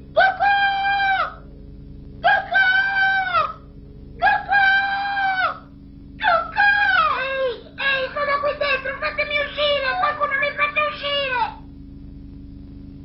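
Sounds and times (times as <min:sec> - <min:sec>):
cartoon girl calling out: 0:00.2 - 0:01.4, 0:02.2 - 0:03.6, 0:04.2 - 0:11.6.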